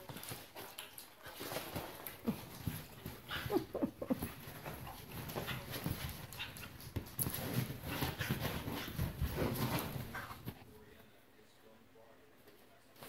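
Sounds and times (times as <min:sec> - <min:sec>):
rustling on leather couch: 0:00.0 - 0:10.7
dog whining and grunting: 0:03.3 - 0:04.4.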